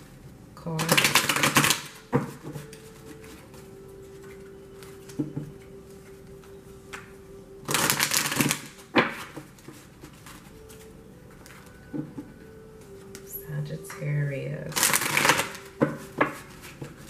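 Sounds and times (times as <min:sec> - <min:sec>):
cards shuffling: 0:07.7 - 0:12.2, 0:14.7 - 0:17.0.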